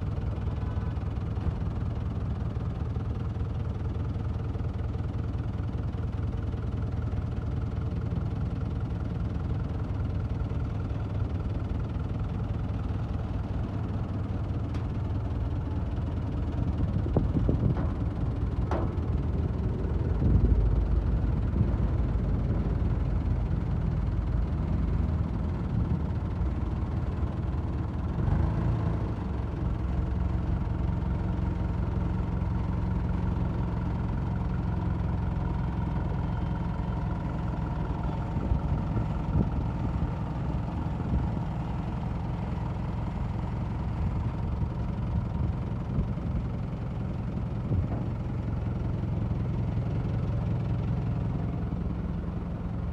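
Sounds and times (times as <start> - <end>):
tractor diesel engine idling: 0.0 - 52.9.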